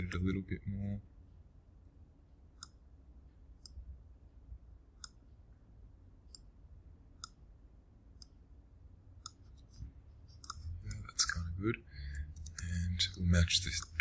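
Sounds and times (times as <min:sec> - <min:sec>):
low room hum: 0:00.0 - 0:14.0
computer mouse clicks: 0:02.6 - 0:02.8, 0:03.6 - 0:03.8, 0:05.0 - 0:05.2, 0:07.2 - 0:07.4, 0:09.2 - 0:09.7, 0:10.4 - 0:11.1.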